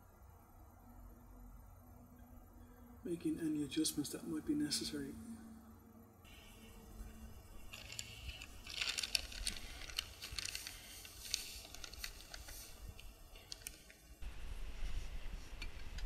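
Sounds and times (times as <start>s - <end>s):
plastic bag crinkling: 7.4s - 14.2s.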